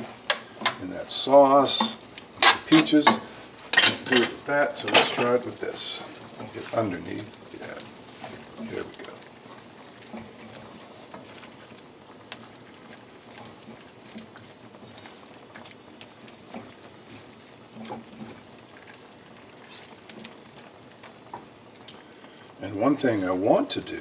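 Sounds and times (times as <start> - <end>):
skillet bubbling and sizzling: 0.0 - 24.0
spatula scraping pan: 1.8 - 5.4.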